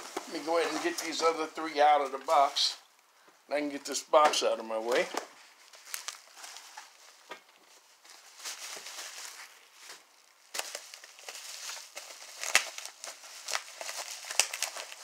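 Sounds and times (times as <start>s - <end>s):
bubble wrap crinkling: 4.9s - 15.0s.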